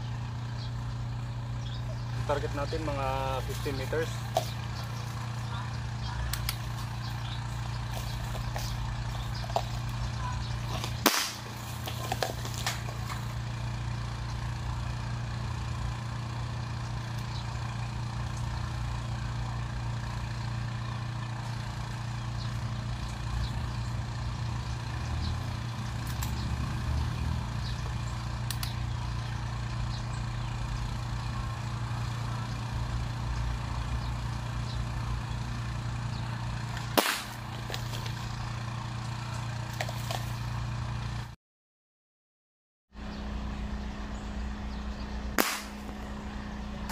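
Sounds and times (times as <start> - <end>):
steady low hum: 0.0 - 26.5, 43.0 - 46.9
airgun firing crack: 11.0 - 11.7, 36.9 - 37.6, 45.4 - 46.0.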